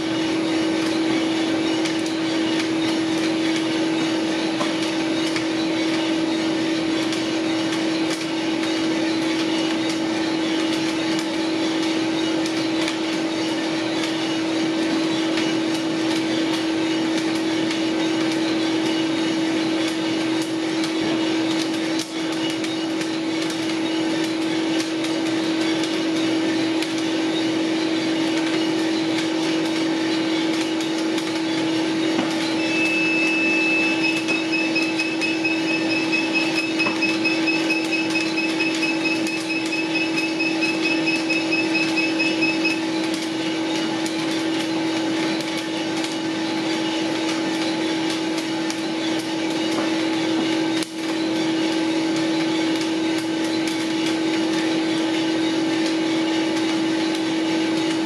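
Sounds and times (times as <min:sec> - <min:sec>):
motor and fan hum: 0:00.0 - 0:58.0
electronic beep: 0:32.0 - 0:43.0.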